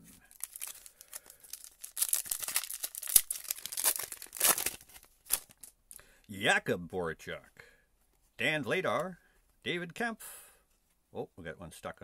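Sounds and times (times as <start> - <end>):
foil wrapper crinkling: 0.3 - 5.7.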